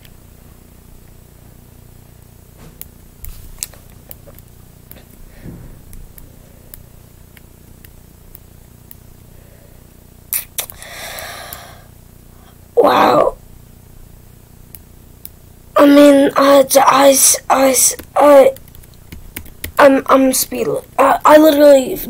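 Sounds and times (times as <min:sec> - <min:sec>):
low steady hum: 0:00.0 - 0:22.0
short breath: 0:10.8 - 0:12.5
sharp clicks: 0:17.9 - 0:19.8.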